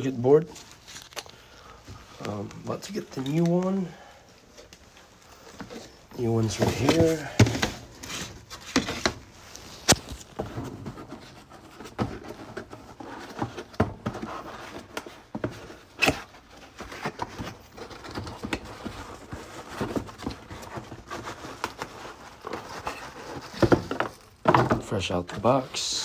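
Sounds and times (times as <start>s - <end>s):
cardboard scraping and rustling: 5.3s - 26.0s.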